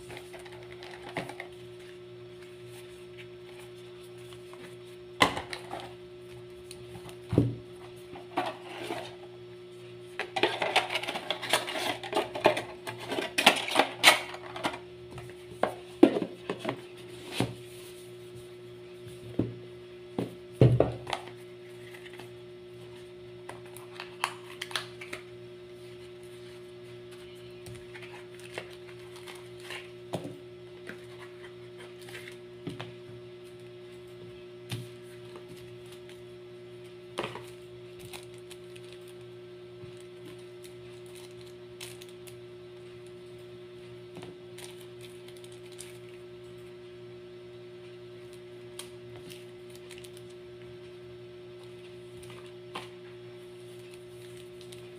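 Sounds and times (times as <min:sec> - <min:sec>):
electrical hum: 0:00.0 - 0:54.9
boxes and plastic bags handled: 0:06.6 - 0:09.3, 0:10.3 - 0:14.8, 0:25.8 - 0:32.4, 0:37.2 - 0:39.3, 0:39.9 - 0:42.4, 0:44.5 - 0:46.2, 0:49.2 - 0:50.3.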